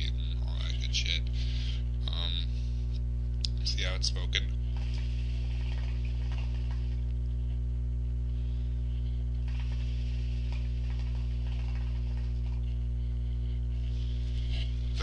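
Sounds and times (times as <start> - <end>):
steady electrical hum: 0.0 - 15.0
hookah water bubbling: 4.7 - 7.1, 9.4 - 12.7.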